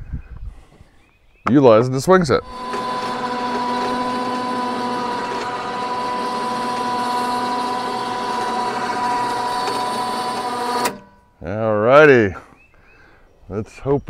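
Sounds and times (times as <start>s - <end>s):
electric winch motor whine: 2.4s - 11.3s.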